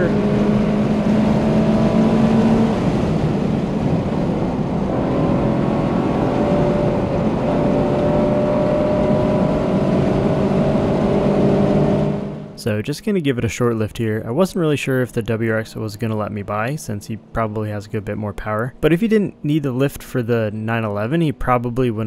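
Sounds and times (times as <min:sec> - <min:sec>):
car engine revving: 0:00.0 - 0:12.6.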